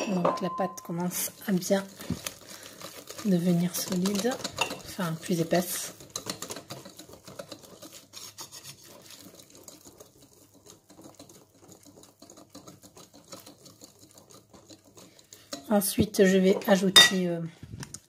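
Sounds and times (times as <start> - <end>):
whisk scraping batter in bowl: 0.0 - 17.5.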